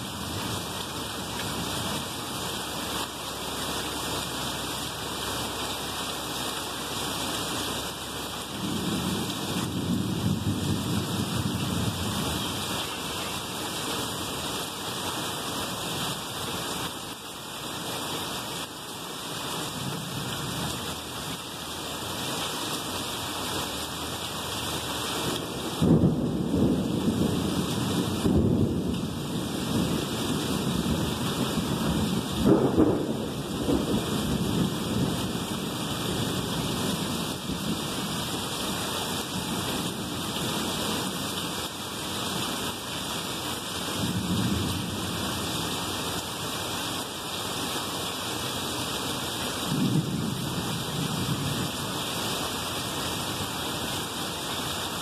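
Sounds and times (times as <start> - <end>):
rain pouring: 0.0 - 55.0
thunder rumbling: 25.6 - 38.0, 49.7 - 51.8.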